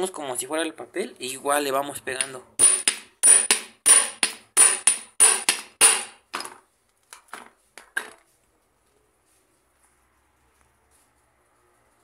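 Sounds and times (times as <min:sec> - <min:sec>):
hammer striking steel shaft: 0:02.2 - 0:06.2.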